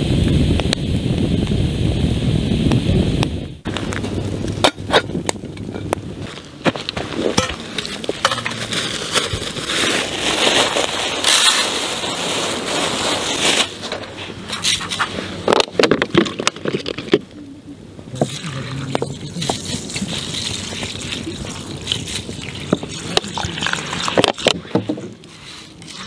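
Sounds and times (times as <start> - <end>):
plastic bag crinkling: 7.0 - 14.2.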